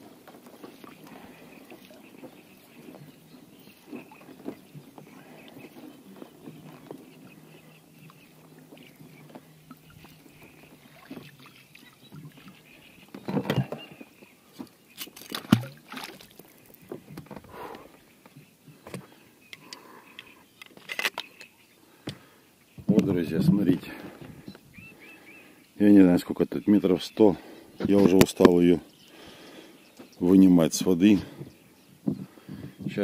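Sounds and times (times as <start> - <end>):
water dripping and splashing: 0.2 - 13.8, 14.5 - 17.4.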